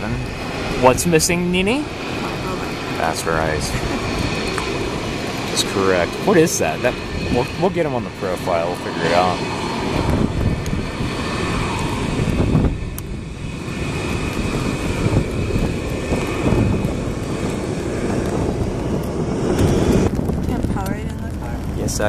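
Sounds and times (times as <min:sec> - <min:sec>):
faint high whine: 0:00.0 - 0:15.2
jet engines rushing: 0:00.0 - 0:22.0.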